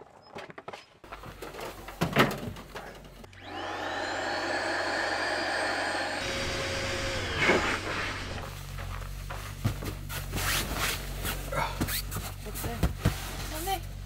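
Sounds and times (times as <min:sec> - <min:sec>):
electric air pump whining: 0:03.3 - 0:08.5.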